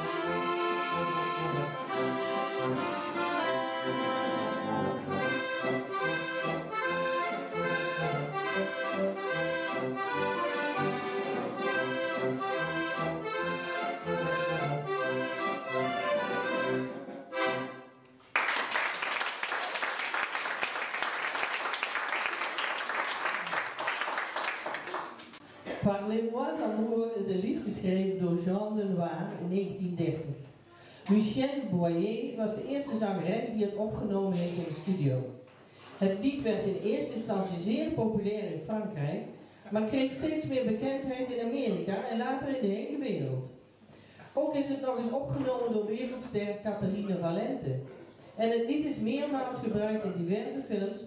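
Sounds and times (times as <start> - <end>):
accordion orchestra playing: 0.0 - 18.1
audience applause: 18.3 - 25.4.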